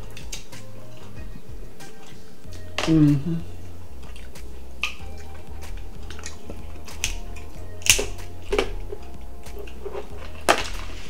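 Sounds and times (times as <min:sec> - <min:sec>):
crab shell cracking: 0:06.0 - 0:08.9.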